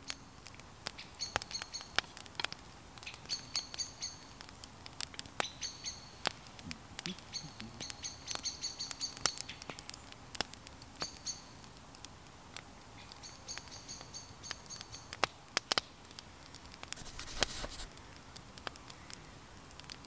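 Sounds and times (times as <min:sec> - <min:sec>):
wood fire crackling: 0:00.0 - 0:20.0
rustling: 0:16.9 - 0:18.0.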